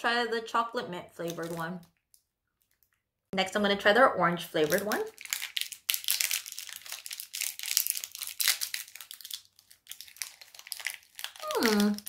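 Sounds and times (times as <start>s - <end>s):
candy wrapper crinkling and tearing: 1.2s - 3.0s, 4.6s - 12.0s.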